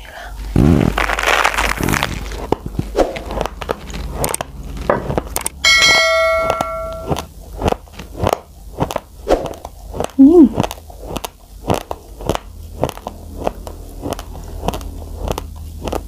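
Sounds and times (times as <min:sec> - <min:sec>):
rice crunching between teeth: 0:00.6 - 0:05.6, 0:07.1 - 0:16.0
bell-like ding: 0:05.6 - 0:07.2.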